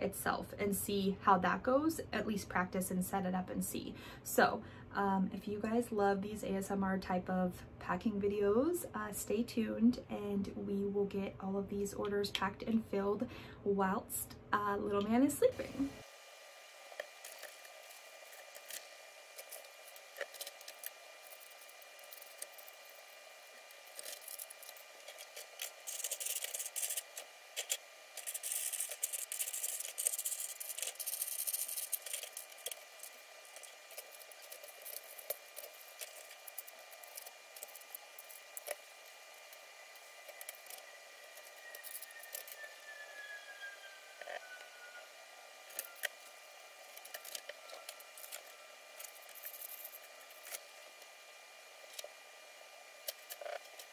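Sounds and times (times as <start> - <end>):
rustling and scraping: 17.0 - 42.7.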